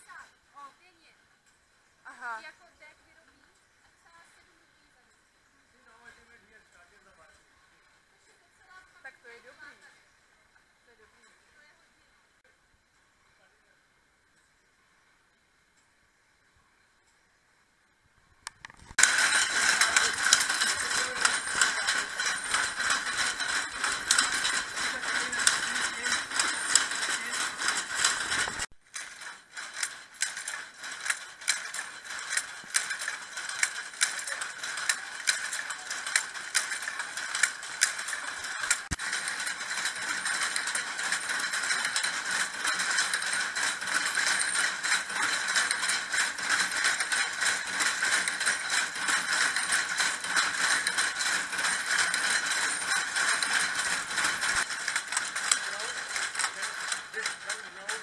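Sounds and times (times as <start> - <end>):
power looms clattering: 18.9 - 58.0.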